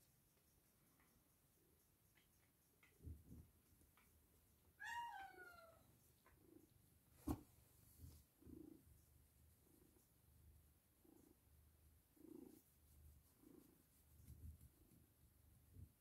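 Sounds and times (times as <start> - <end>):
cat meowing: 4.8 - 5.9
cat purring: 5.5 - 16.0.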